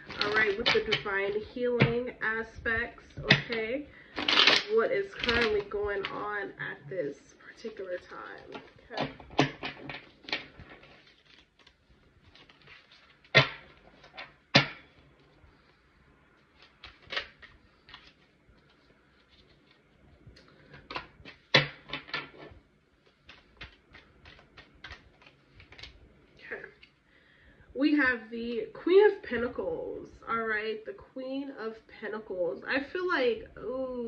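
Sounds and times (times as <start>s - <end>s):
cards being shuffled: 0.0s - 1.5s, 3.2s - 6.3s, 7.6s - 14.3s, 16.4s - 26.0s.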